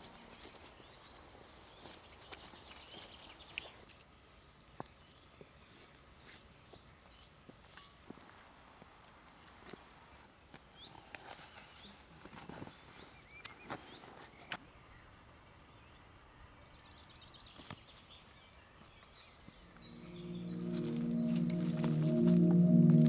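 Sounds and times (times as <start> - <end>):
bird chirps: 12.8 - 23.0
bird trill: 19.6 - 23.0.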